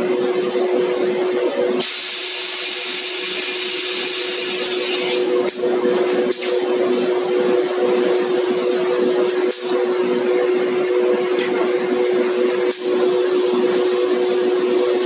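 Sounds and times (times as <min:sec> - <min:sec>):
loud hiss of escaping air: 0:01.8 - 0:05.2.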